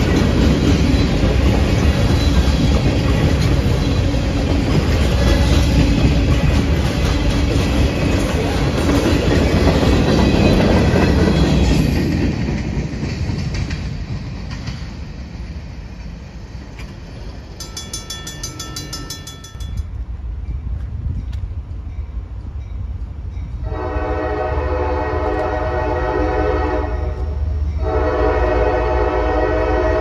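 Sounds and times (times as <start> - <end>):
freight train clickety-clack: 0.0 - 30.0
crossing bell ringing: 17.5 - 21.3.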